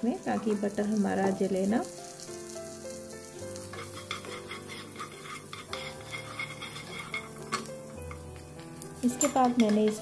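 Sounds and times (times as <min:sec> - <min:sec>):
butter and oil sizzling in a pan: 0:00.0 - 0:10.0
wooden spatula scraping a pan: 0:03.6 - 0:10.0.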